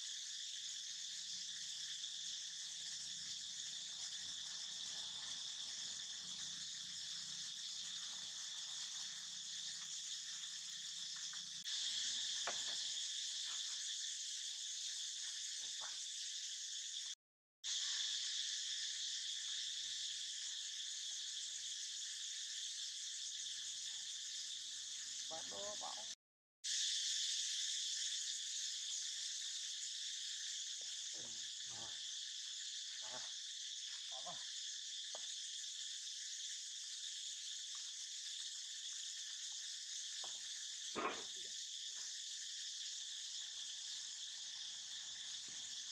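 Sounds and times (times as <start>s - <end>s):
insect chorus chirring: 0.0s - 45.9s
faint voice-like sounds: 41.0s - 41.4s.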